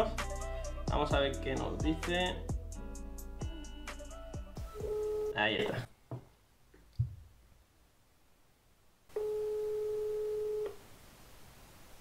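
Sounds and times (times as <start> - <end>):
telephone ringback tone: 4.7 - 5.4, 9.1 - 10.8.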